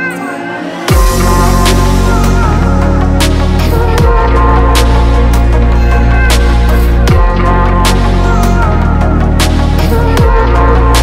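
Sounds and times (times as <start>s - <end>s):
electronic music: 0.0s - 11.0s
sharp percussion hit: 0.9s - 2.2s
deep falling bass hit: 0.9s - 11.0s.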